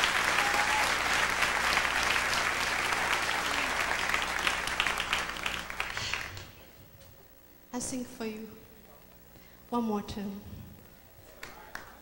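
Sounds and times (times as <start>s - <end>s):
audience applauding: 0.0s - 6.7s, 11.3s - 12.0s.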